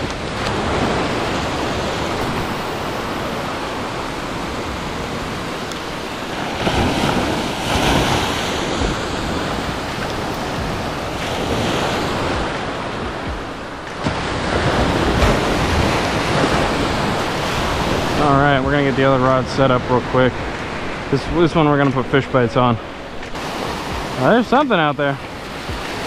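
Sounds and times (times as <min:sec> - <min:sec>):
ocean surf breaking on beach: 0:00.0 - 0:26.0.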